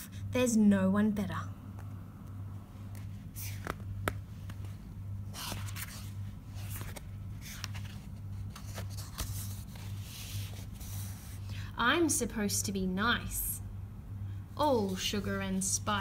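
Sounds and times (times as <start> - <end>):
low pulsing hum: 0.0 - 16.0
book pages rustling and turning: 2.7 - 11.5.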